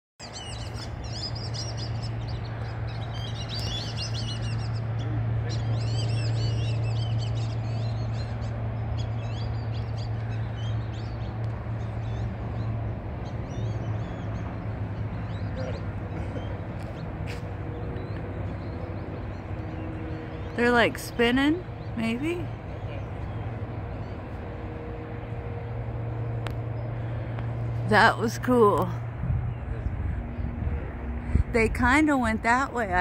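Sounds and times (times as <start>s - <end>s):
flock of birds chirping: 0.2s - 28.2s.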